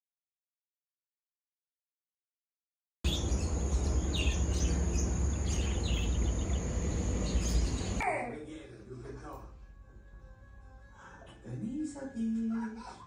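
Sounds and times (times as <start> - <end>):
birds chirping: 3.0 - 8.0.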